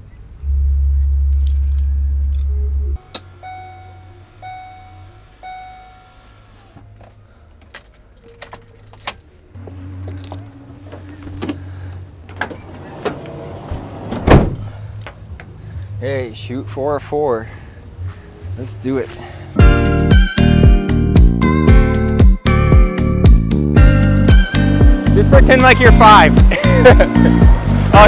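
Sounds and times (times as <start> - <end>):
low hum: 0.0 - 6.0
van warning chime beeping: 2.0 - 6.8
van door shutting with bang: 12.3 - 14.8.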